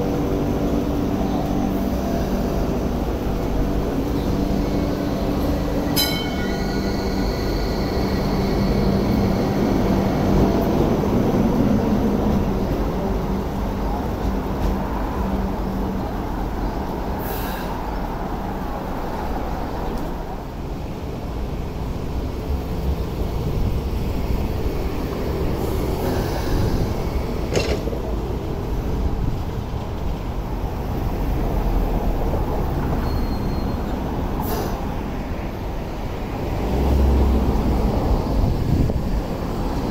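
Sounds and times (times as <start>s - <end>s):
train rumbling on rails: 0.0s - 39.9s
brief high squeal: 33.0s - 34.8s.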